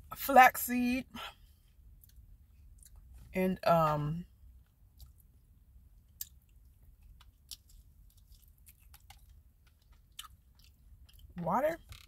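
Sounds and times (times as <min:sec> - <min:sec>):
faint wet chewing clicks: 0:02.0 - 0:03.1, 0:04.6 - 0:05.3, 0:06.0 - 0:11.3.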